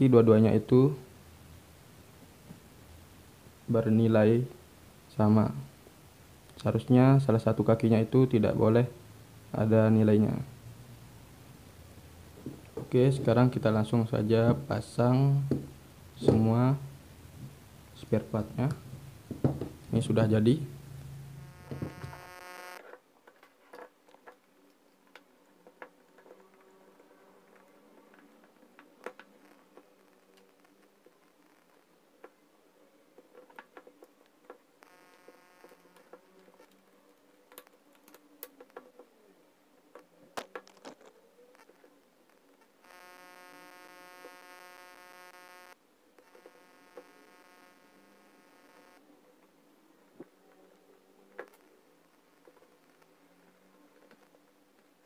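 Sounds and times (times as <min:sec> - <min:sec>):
steady buzzing hum: 0:00.0 - 0:22.8, 0:34.8 - 0:36.3, 0:42.7 - 0:49.2
electrical buzz: 0:18.7 - 0:22.8, 0:34.8 - 0:36.1, 0:42.8 - 0:49.0.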